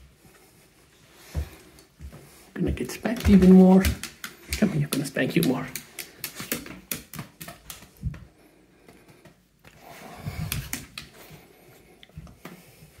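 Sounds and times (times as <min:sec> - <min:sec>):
dog claws clicking on wood floor: 0:02.7 - 0:08.2, 0:10.3 - 0:11.2.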